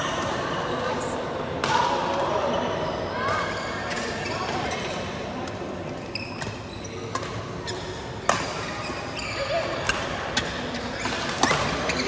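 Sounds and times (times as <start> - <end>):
sports hall background noise: 0.0 - 12.0
rackets striking shuttlecock: 6.4 - 8.7.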